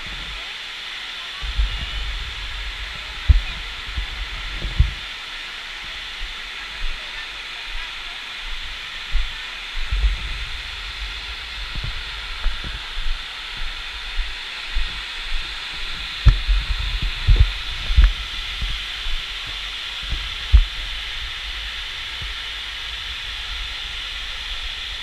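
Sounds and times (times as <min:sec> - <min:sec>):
water spraying from nozzles: 0:00.0 - 0:25.0
low thumps: 0:01.4 - 0:05.0, 0:09.8 - 0:19.2.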